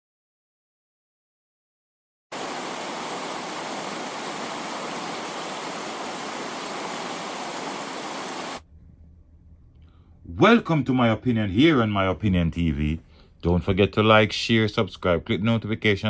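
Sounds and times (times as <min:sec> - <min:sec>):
static-like hiss: 0:02.4 - 0:08.6.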